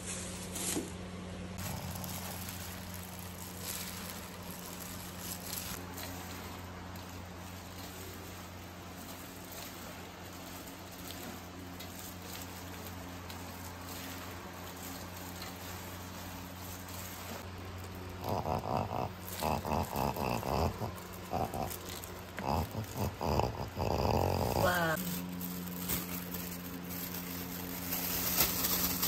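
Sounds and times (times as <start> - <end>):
low steady hum: 0.0 - 29.0
dog's noisy nasal breathing: 18.2 - 25.0.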